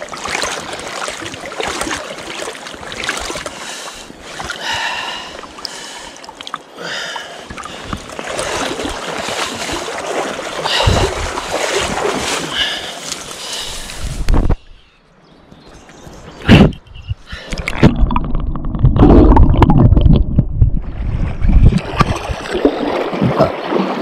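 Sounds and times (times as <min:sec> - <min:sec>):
water sloshing around legs: 0:00.0 - 0:06.7, 0:07.3 - 0:14.1.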